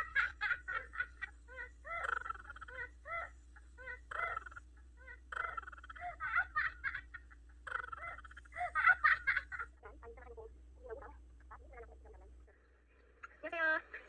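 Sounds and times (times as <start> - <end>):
high-pitched cackling laughter: 0.0 - 10.2.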